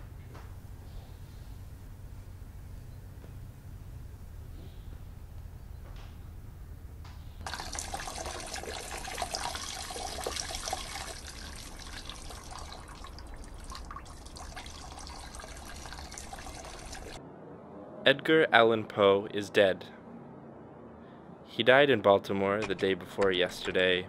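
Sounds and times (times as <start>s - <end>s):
liquid trickling and splashing: 7.4s - 17.2s.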